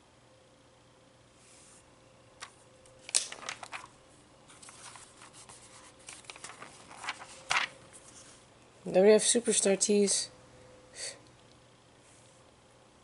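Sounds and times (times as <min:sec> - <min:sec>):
sharp page snap: 0:02.4 - 0:03.9
paper pages rustling: 0:02.4 - 0:08.4.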